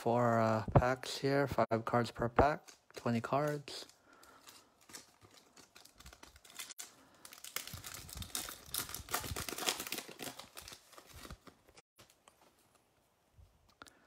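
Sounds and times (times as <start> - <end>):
wrapper tearing and crinkling: 4.3 - 11.8.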